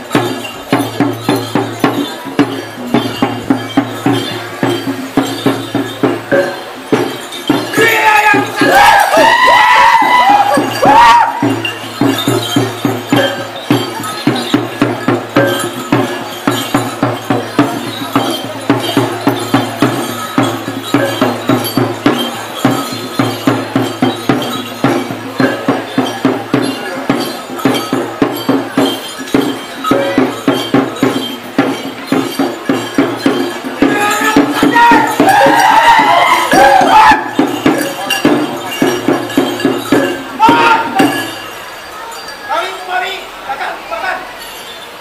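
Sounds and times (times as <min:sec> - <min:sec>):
drum beating steady rhythm: 0:00.0 - 0:45.0
ringing metal percussion: 0:00.0 - 0:45.0
voices shouting: 0:06.3 - 0:14.6, 0:33.6 - 0:45.0.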